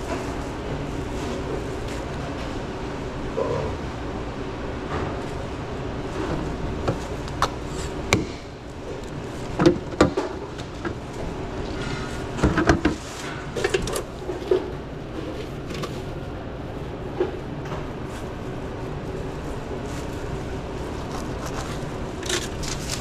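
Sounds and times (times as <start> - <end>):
steady low hum: 0.0 - 23.0
rustling: 19.0 - 23.0.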